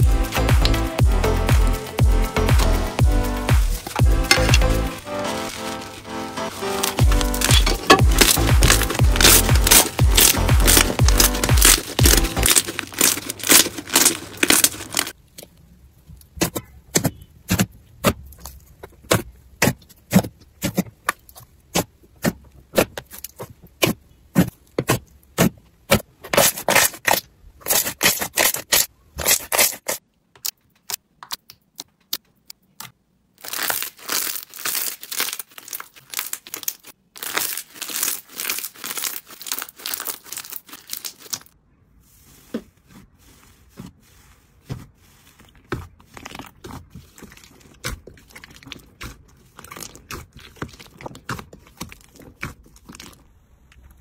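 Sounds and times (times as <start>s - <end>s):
slime popping and crackling: 3.5s - 15.4s, 26.4s - 41.6s, 45.7s - 53.9s.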